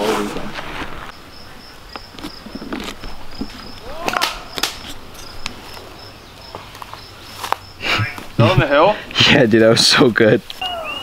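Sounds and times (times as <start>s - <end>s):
insect chirping: 0.6s - 9.2s, 10.4s - 11.0s
sharp clicks: 4.1s - 5.6s.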